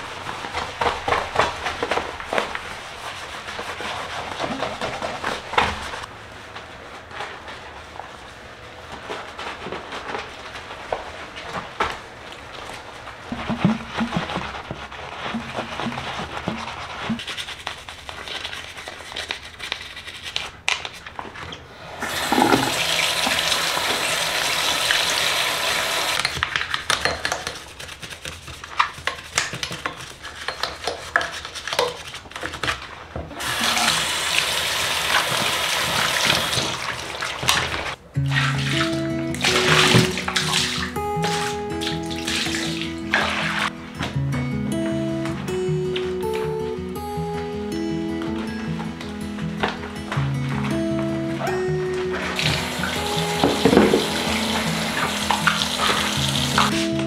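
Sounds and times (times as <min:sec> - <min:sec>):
sponge and brush scrubbing: 0:00.0 - 0:06.1, 0:12.5 - 0:21.0, 0:22.1 - 0:43.7, 0:52.2 - 0:57.0
tap water running: 0:22.0 - 0:26.4, 0:33.4 - 0:43.7, 0:52.3 - 0:57.0
soft music with held notes: 0:38.0 - 0:57.0.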